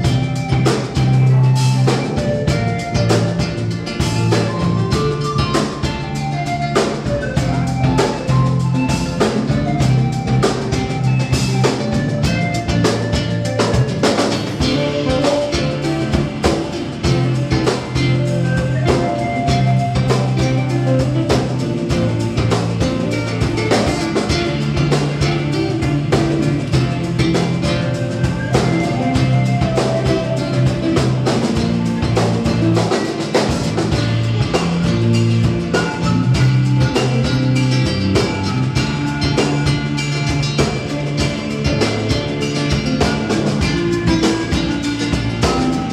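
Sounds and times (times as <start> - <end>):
bass notes: 0.0 - 45.9
drum beat: 0.0 - 45.9
live band playing instrumental: 0.0 - 45.9.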